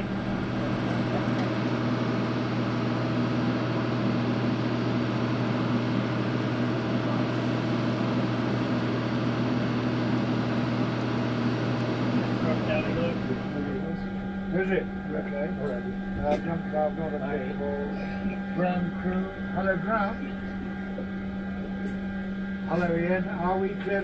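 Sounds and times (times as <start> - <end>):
auxiliary power unit humming: 0.0 - 24.0.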